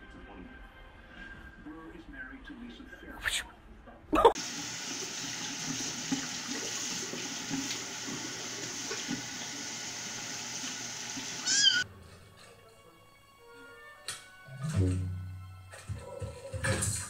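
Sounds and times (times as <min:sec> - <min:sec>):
tap water running into sink: 0:04.4 - 0:11.8
kitten meowing: 0:11.4 - 0:11.8.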